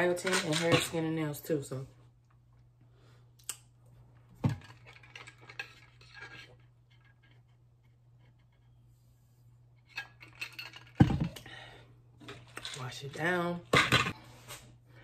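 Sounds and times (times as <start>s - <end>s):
plastic tumbler and bottles clinking: 0.0s - 1.2s, 4.4s - 7.4s, 9.9s - 14.2s.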